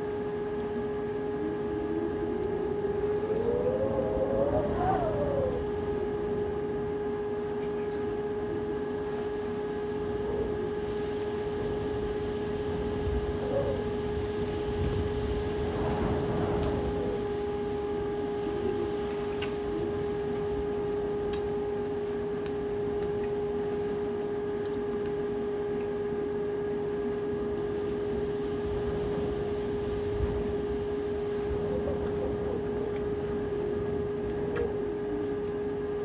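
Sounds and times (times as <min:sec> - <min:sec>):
constant high tone: 0:00.0 - 0:36.0
strong wind rushing: 0:14.6 - 0:18.7.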